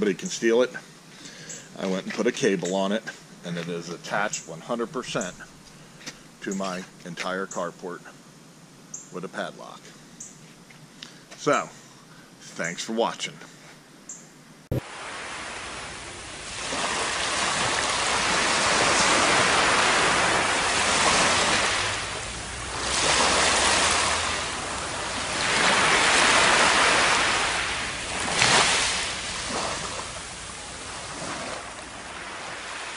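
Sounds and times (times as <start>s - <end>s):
small waves washing on beach: 14.7s - 32.9s
water splash: 14.7s - 32.9s.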